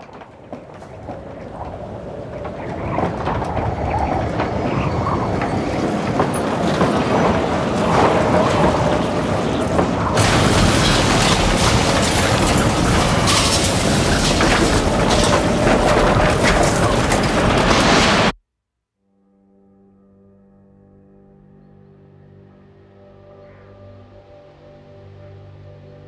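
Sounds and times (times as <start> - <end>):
tornado roaring: 0.0 - 18.4.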